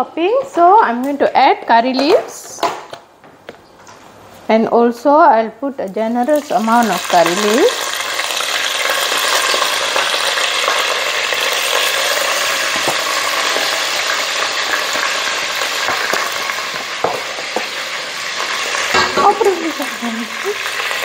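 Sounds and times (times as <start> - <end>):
spices sizzling in hot oil: 5.8 - 21.0.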